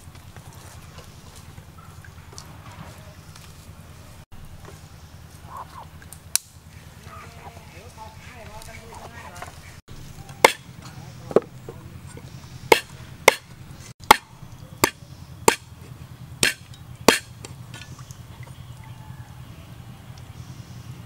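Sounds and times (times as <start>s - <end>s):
knife chopping on wooden block: 12.7s - 13.5s, 14.8s - 15.6s, 16.4s - 17.3s.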